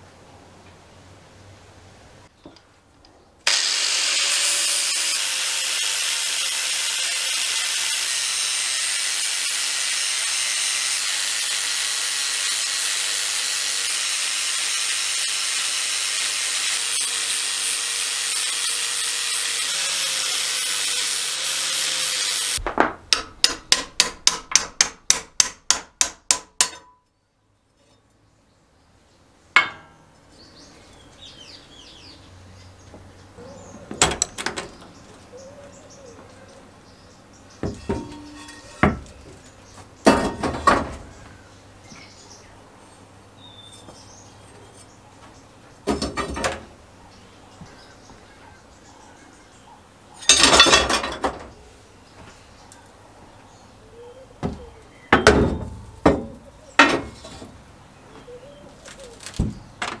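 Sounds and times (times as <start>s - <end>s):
angle grinder grinding metal: 3.5s - 22.6s, 37.7s - 39.0s
sharp metal knocks: 22.6s - 27.0s, 29.6s - 30.0s.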